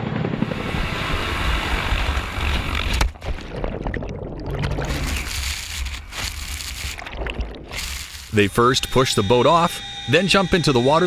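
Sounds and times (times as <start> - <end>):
muffled underwater rumbling: 0.3 - 8.4.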